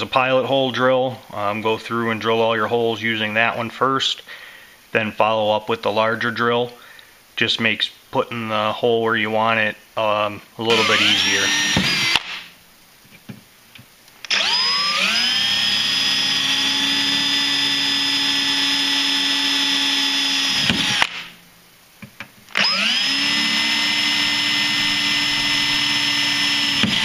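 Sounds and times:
power drill whining: 10.7 - 12.5, 14.2 - 21.3, 22.5 - 27.0.

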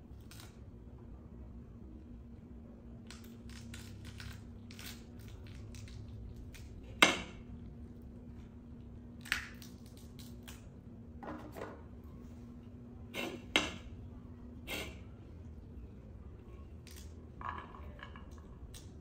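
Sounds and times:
pomegranate rind crackling: 0.0 - 0.6, 3.0 - 10.9.

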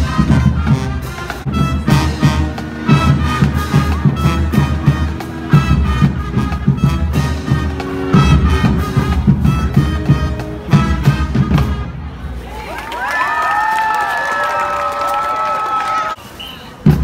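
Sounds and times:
fast drum beat: 0.0 - 11.5
marching band horns: 0.0 - 12.6.

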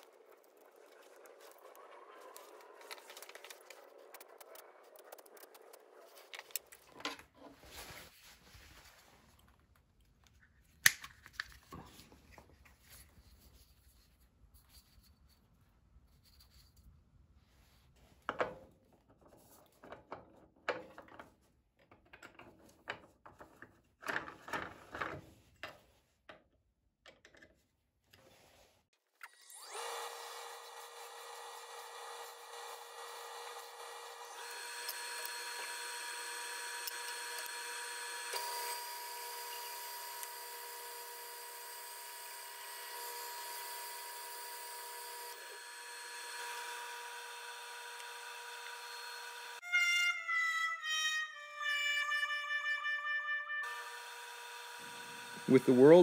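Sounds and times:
wood lathe motor whining: 29.2 - 49.6, 53.6 - 56.0.

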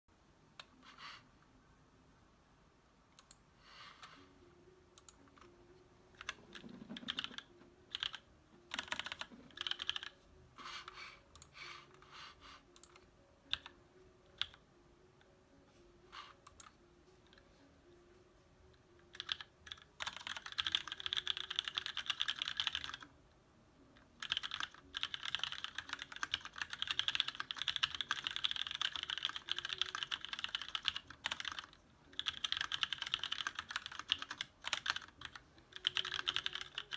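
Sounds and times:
mechanical keyboard typing: 6.1 - 10.2, 12.8 - 13.7, 14.3 - 14.6, 19.0 - 23.1, 24.2 - 36.9.

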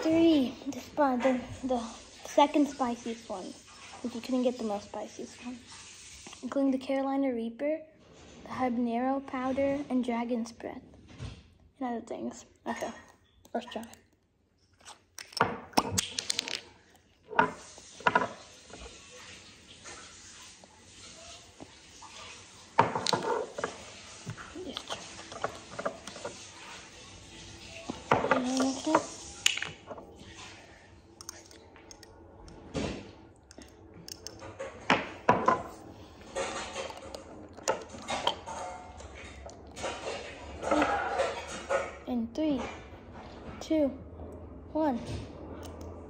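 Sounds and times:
bottle cap screwing on: 14.7 - 16.6.

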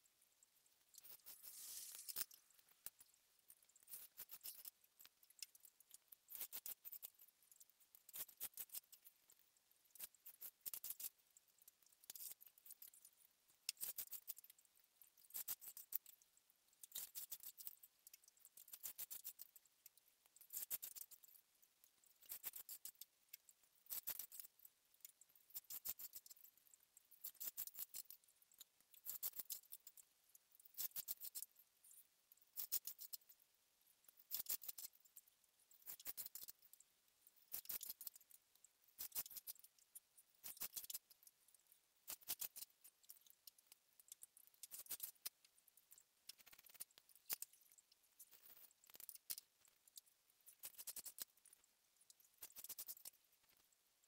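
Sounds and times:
cane strand scratching through cane: 1.0 - 2.4.

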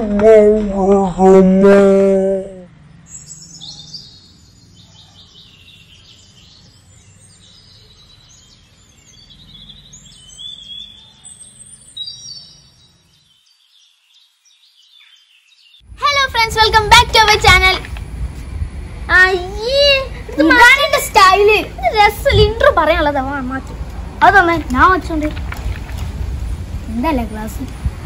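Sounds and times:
small birds chirping: 2.6 - 18.1, 19.1 - 28.0.

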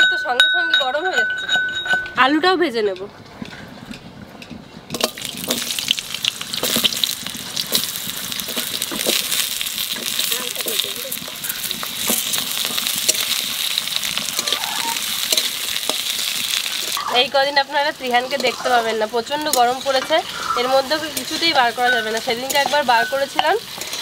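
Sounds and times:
potato wedges sizzling in oil: 4.9 - 24.0.

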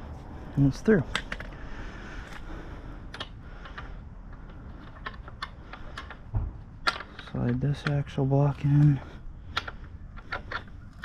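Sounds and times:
small metal parts clicking: 3.1 - 11.0.

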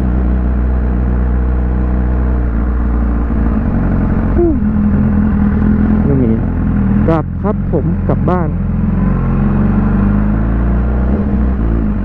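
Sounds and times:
motorcycle engine running: 0.0 - 12.0
wind rush: 10.9 - 12.0.

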